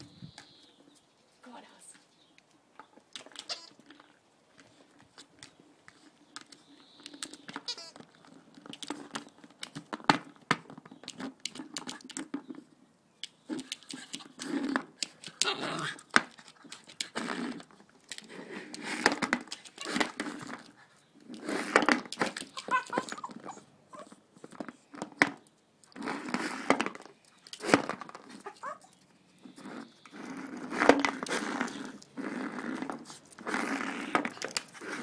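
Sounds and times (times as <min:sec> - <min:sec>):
sharp clicks and crinkling: 0:02.4 - 0:12.6, 0:13.2 - 0:23.5, 0:24.4 - 0:35.0
dog grumbling and whining: 0:15.3 - 0:16.1, 0:22.4 - 0:24.2, 0:28.2 - 0:35.0.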